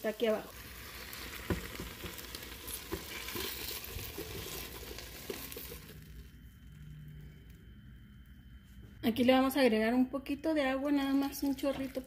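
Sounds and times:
vegetables sizzling in oil: 0.0s - 6.2s
spatula scraping a pan: 0.7s - 5.8s.

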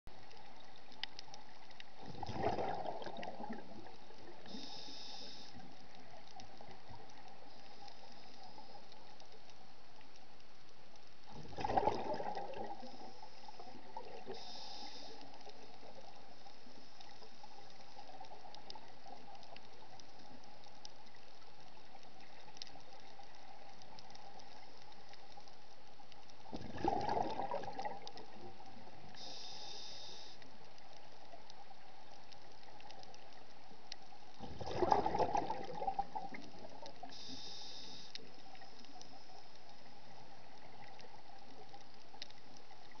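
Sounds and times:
faint hum: 0.1s - 43.0s
gurgling exhaled bubbles: 2.0s - 4.5s, 11.3s - 14.4s, 26.5s - 28.8s, 34.4s - 37.1s
hiss of inhaled air: 4.4s - 5.8s, 12.8s - 15.6s, 29.1s - 30.5s, 37.0s - 39.0s.

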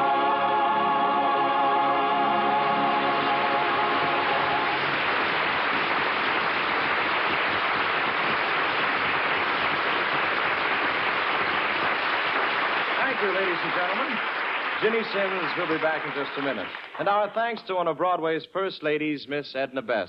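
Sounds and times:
choir and orchestra chord: 0.0s - 5.0s
audience applauding: 2.7s - 17.3s.

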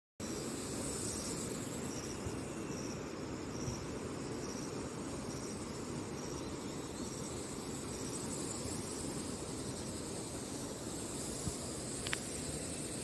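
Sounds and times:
insect chirping: 0.2s - 13.0s
low rushing outdoor noise: 0.2s - 13.0s.

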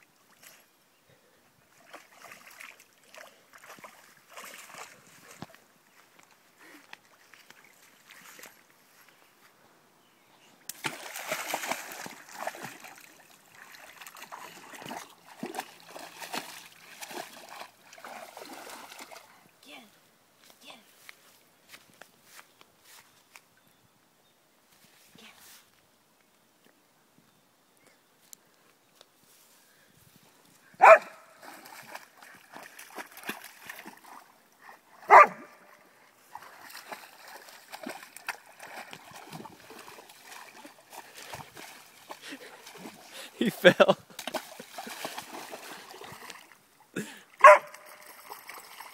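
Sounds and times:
dog splashing in water: 1.8s - 5.5s, 10.7s - 19.3s, 30.8s - 34.3s, 34.9s - 43.1s, 44.1s - 46.6s, 47.4s - 48.9s
dog barking: 30.8s - 31.3s, 35.1s - 35.6s, 47.4s - 48.0s.

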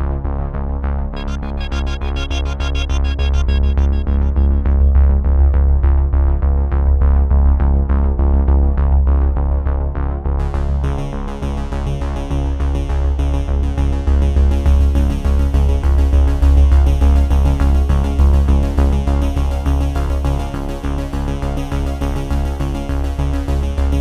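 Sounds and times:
electronic music with heavy bass: 1.2s - 5.8s.

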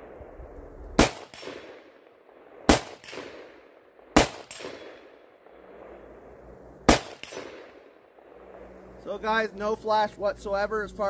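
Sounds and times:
gunshot echo: 1.0s - 6.1s, 6.9s - 8.7s
gunshots: 1.0s - 6.2s, 6.8s - 8.8s.

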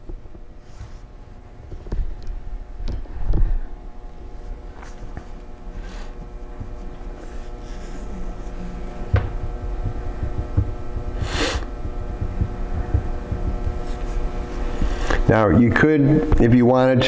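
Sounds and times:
electrical hum: 0.0s - 17.0s
lapel microphone rubbing on shirt: 0.6s - 1.2s, 4.2s - 15.3s
breath or sniff: 11.2s - 11.7s.

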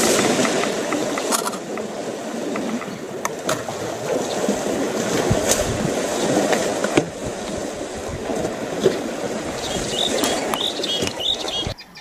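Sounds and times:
sharp clicks and knocks: 0.0s - 1.9s
water sloshing and splashing: 0.0s - 11.7s.

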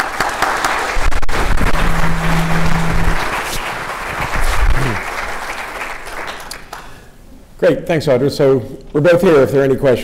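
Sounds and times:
audience applauding: 0.0s - 7.0s.

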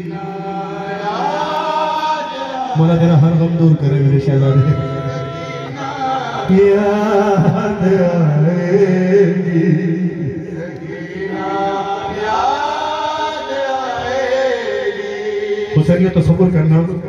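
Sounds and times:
men chanting a lament over loudspeaker: 0.0s - 17.0s.

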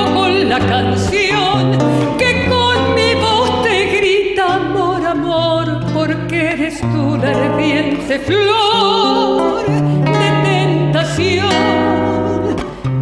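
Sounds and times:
woman singing with vibrato: 0.0s - 12.9s
acoustic guitar: 0.0s - 13.0s.

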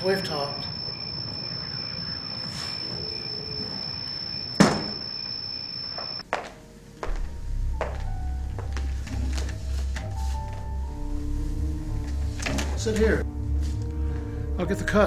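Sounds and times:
faint high whine: 0.0s - 6.2s
door shutting: 4.5s - 5.3s, 12.0s - 13.2s
low music: 6.3s - 15.0s.

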